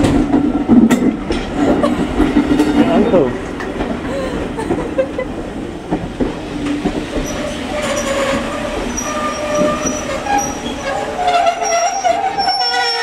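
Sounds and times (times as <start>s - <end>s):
train coaches rolling past: 0.0s - 13.0s
steel wheels squealing on rails: 7.1s - 13.0s.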